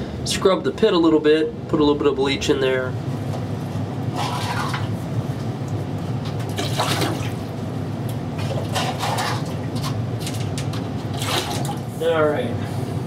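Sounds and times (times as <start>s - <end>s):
bucket dipping into water: 4.1s - 5.0s, 6.2s - 7.5s, 8.4s - 11.9s
water sloshing and splashing: 4.1s - 12.0s.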